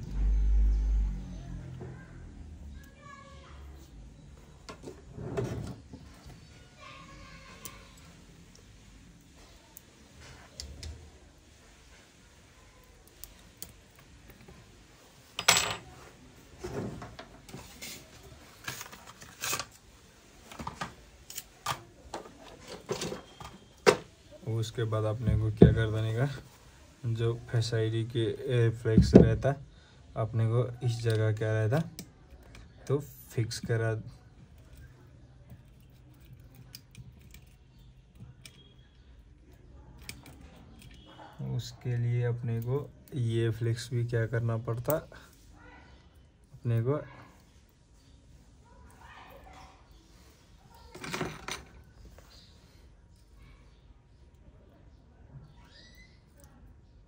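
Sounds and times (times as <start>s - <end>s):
small objects clicking and tapping: 34.4s - 41.2s.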